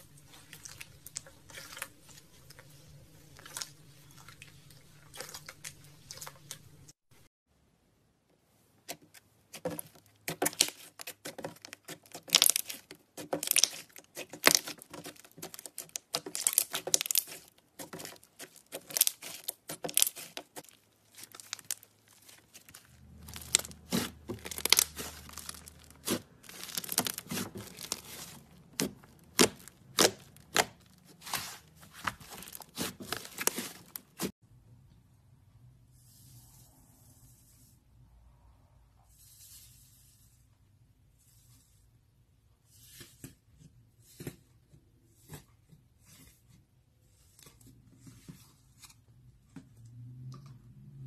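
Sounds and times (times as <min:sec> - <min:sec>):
slime crackling and popping: 0:10.3 - 0:34.3.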